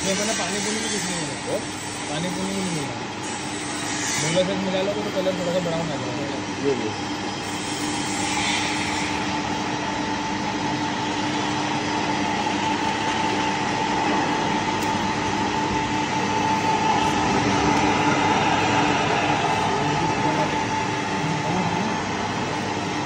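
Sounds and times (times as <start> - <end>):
pellet mill running: 8.6 - 23.0.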